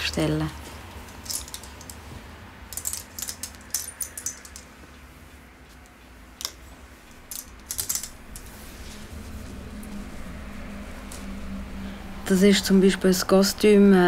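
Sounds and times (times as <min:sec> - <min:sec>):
faint room hum: 0:00.0 - 0:14.0
clothes hangers clicking on a rail: 0:00.9 - 0:02.0, 0:02.7 - 0:04.7, 0:06.4 - 0:08.6.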